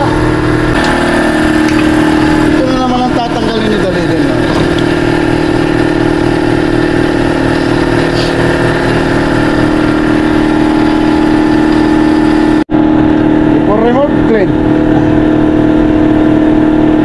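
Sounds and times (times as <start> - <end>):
engine running with low pulse: 0.0 - 17.0.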